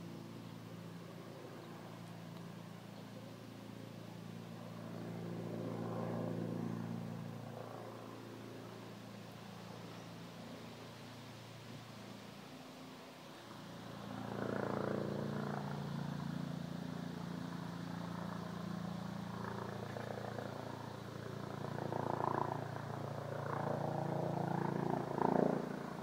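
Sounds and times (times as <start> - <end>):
helicopter droning: 0.0 - 26.0.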